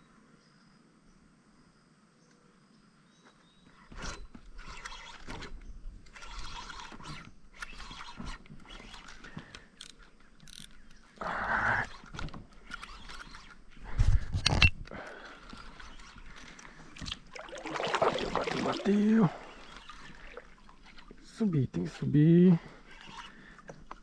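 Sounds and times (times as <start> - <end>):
gear scraping and rustling: 3.8 - 17.3.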